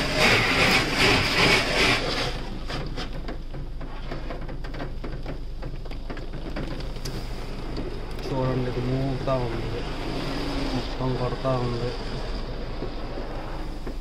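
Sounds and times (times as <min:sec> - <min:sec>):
steady low hum: 0:00.0 - 0:14.0
water spray rushing: 0:09.3 - 0:14.0.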